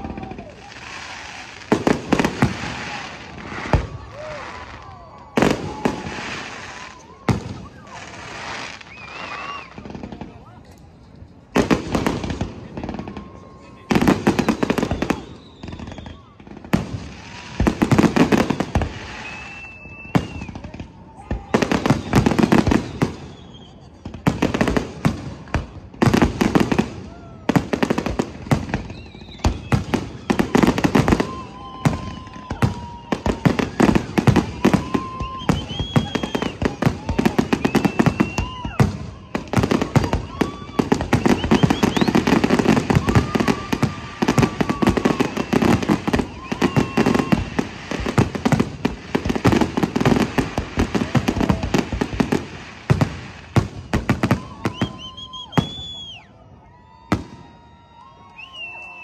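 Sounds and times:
fireworks bursting and crackling: 0.0s - 59.0s.

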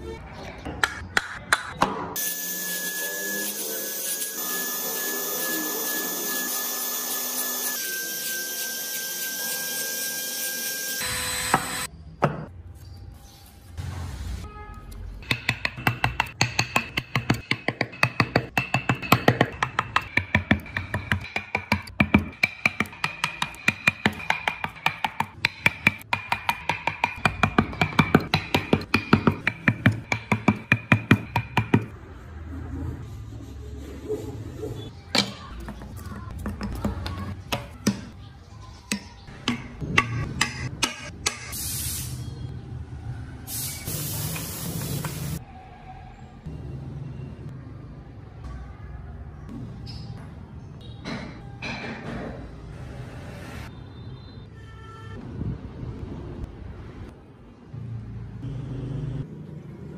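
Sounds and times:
high-pitched machine whine: 2.2s - 11.9s
chisel striking wooden wheel: 15.2s - 31.9s, 38.9s - 41.5s.

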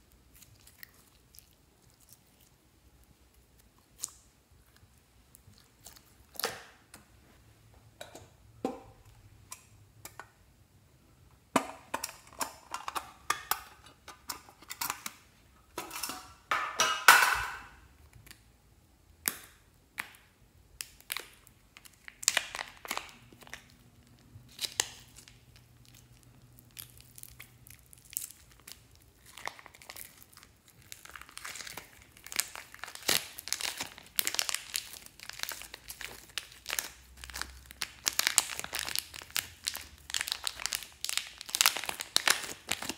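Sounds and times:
slime squishing with sticky clicks: 19.1s - 42.9s
plastic bag crinkling: 21.1s - 42.9s.

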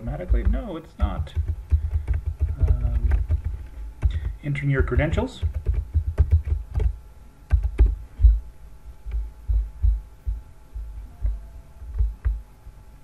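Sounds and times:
keyboard typing: 0.0s - 8.3s.

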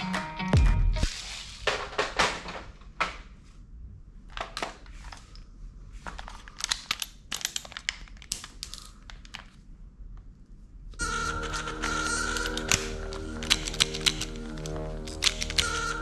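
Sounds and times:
plastic toys rustling and clattering: 1.1s - 3.1s, 4.3s - 5.4s, 6.0s - 9.6s, 11.0s - 16.0s
toy gun mechanical clicks: 11.0s - 16.0s.

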